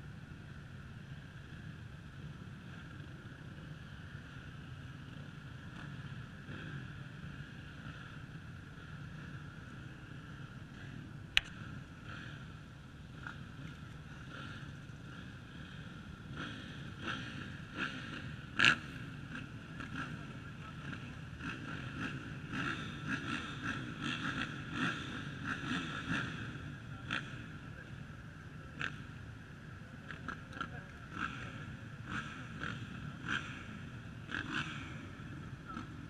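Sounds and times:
motocross bikes idling and revving: 0.0 - 36.0
sharp click: 11.3 - 11.6.

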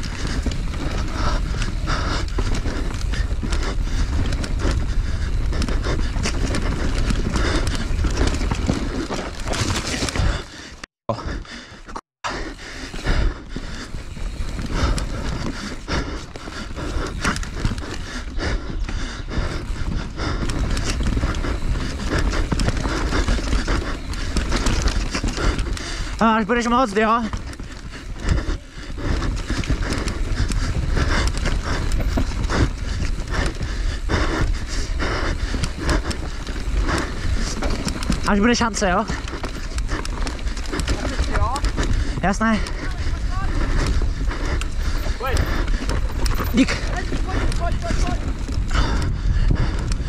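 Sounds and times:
bike knocks and rattles: 0.0 - 10.4
person gasping for breath: 0.0 - 26.2, 27.3 - 50.0
bike tyre noise: 0.0 - 50.0.

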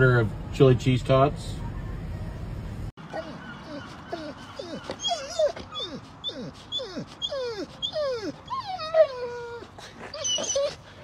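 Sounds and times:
dog whining: 3.0 - 11.0.

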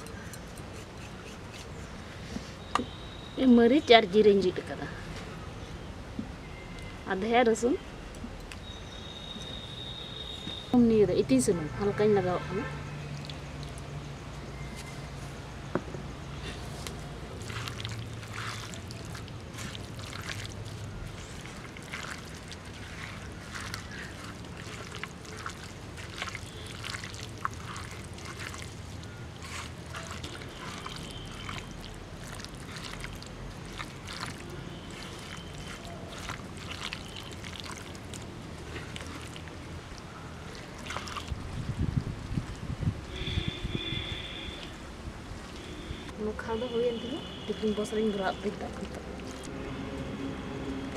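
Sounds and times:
hand kneading wet meat squelching: 16.6 - 41.6, 47.6 - 49.5.

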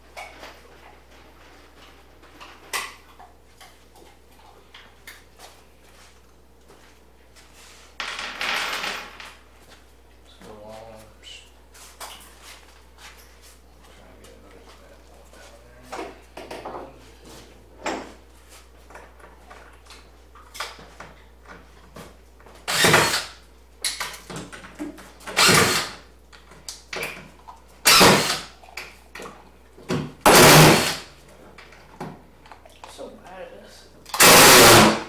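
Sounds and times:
power drill driving screws into wood: 22.7 - 23.4, 25.3 - 26.0, 27.8 - 28.5, 30.2 - 31.1, 34.1 - 35.0.

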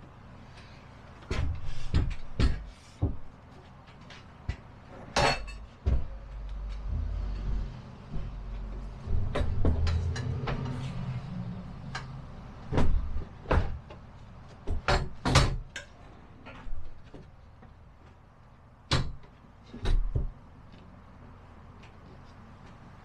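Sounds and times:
low rumble: 6.0 - 12.6.

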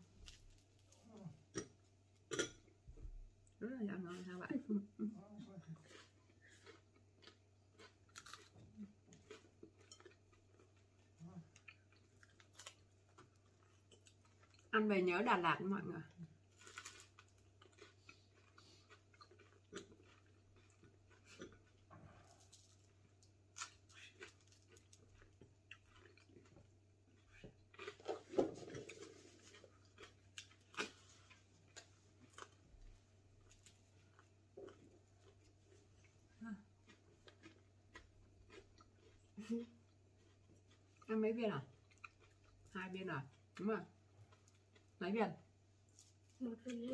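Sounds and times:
crunching bread: 0.0 - 1.8, 5.9 - 14.7, 16.4 - 41.1
bread tearing crackles: 16.5 - 17.6.

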